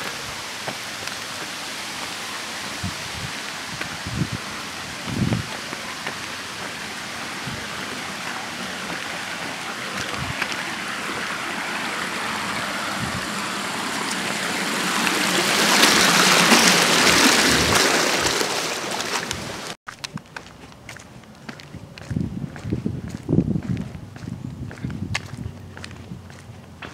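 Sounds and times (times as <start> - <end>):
water cascading over rock: 0.0 - 19.8.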